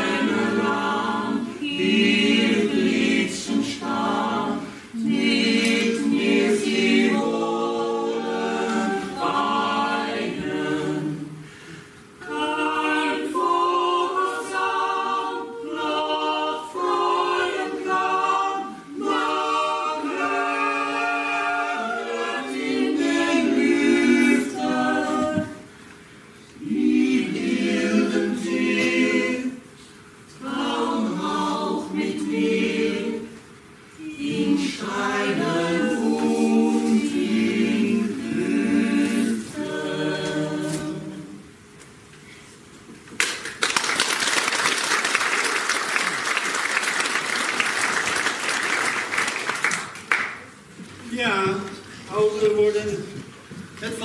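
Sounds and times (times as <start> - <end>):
group singing a cappella: 0.0 - 42.5.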